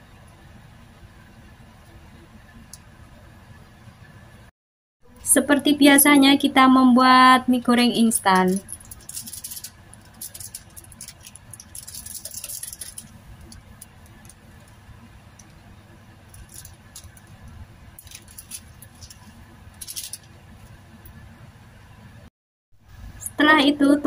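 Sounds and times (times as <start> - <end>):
plastic sachets crinkling: 8.3 - 15.6, 16.3 - 20.8.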